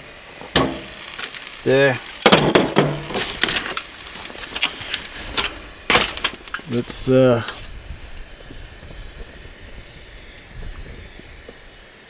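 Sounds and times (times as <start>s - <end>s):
aluminium foil crinkling: 0.3s - 9.9s.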